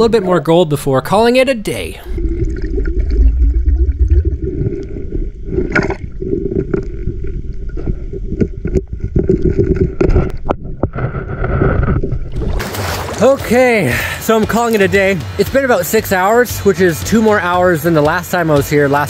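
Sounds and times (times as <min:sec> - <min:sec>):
muffled underwater current rushing: 0:02.1 - 0:14.2.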